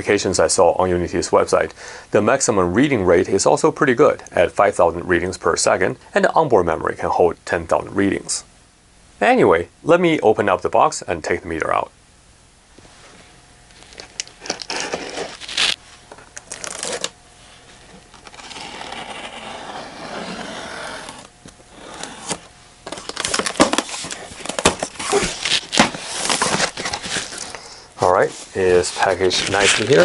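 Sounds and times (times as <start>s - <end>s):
plastic wrapping rustling: 13.7s - 18.8s, 22.0s - 27.6s, 28.5s - 30.0s
packing tape peeling: 13.8s - 17.2s, 18.1s - 27.6s, 29.4s - 30.0s
cardboard flaps opening: 18.2s - 27.5s.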